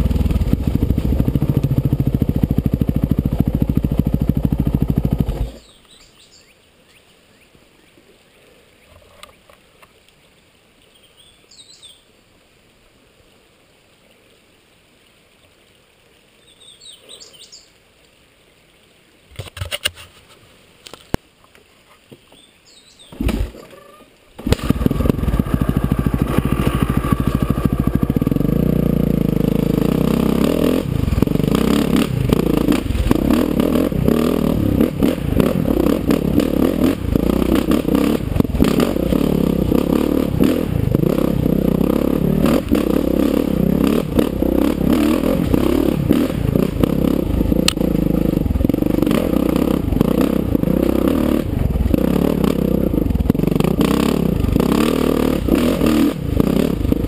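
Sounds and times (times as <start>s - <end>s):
dirt bike engine running: 0.0s - 5.6s, 24.4s - 57.0s
birds chirping: 5.4s - 9.4s, 10.8s - 12.1s, 16.4s - 17.8s, 22.2s - 24.1s.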